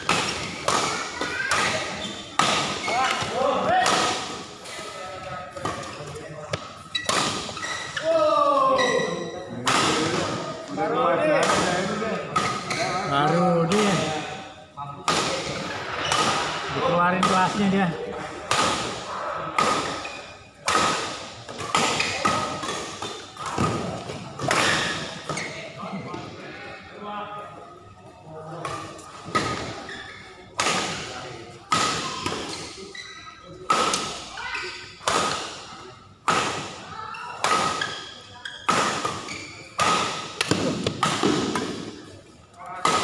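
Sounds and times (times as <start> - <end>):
rackets hitting shuttlecock: 0.0 - 4.8, 5.6 - 7.7, 15.0 - 17.6, 18.4 - 25.4, 33.6 - 35.6, 36.2 - 42.0.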